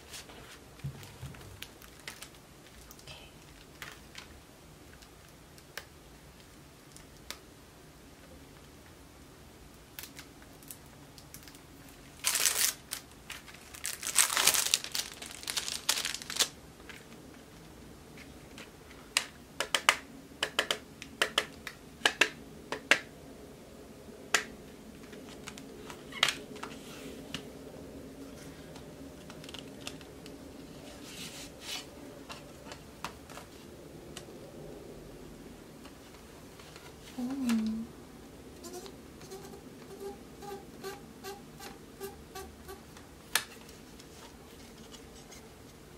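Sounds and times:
plastic wrapping crinkling and tearing: 1.0s - 4.3s, 10.0s - 17.1s.

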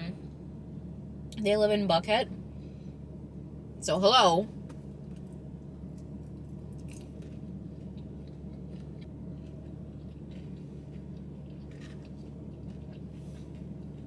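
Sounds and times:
steady low hum: 0.0s - 14.0s
quiet chewing: 5.0s - 14.0s.

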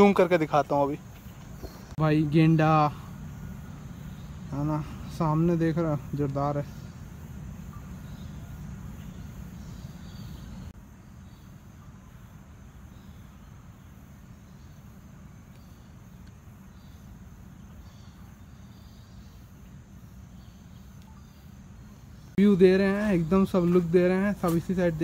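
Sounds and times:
insects chirping: 0.0s - 25.0s
low steady rumble: 1.0s - 25.0s.

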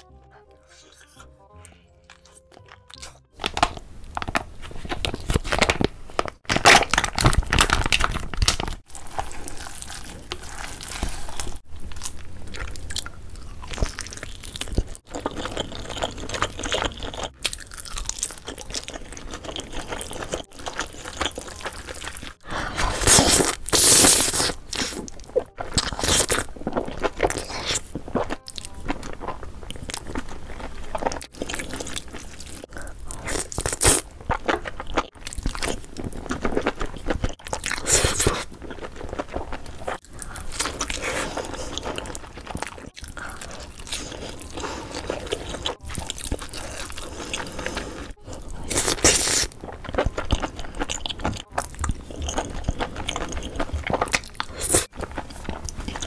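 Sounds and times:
chewing: 0.0s - 5.7s, 8.8s - 56.0s
sauce squeezed from a pouch: 22.7s - 25.1s.

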